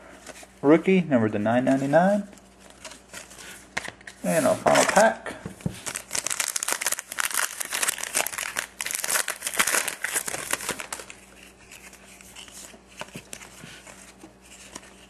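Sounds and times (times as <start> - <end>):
cards being handled: 1.7 - 15.0
foil wrapper crinkling and tearing: 5.8 - 13.9.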